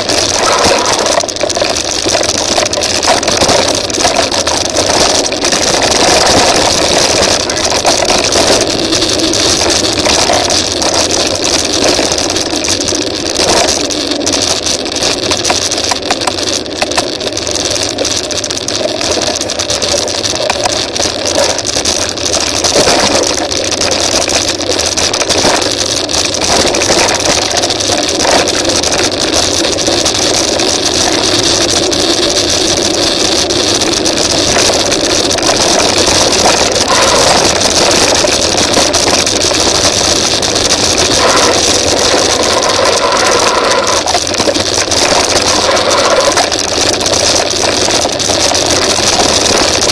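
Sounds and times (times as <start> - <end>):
bike rushing over dirt track: 0.0 - 10.7, 34.5 - 48.0
bike rattles and knocks: 0.0 - 49.9.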